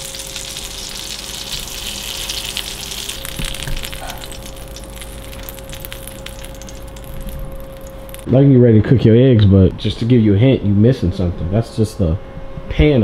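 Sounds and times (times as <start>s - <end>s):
food sizzling in a frying pan: 0.0s - 8.3s.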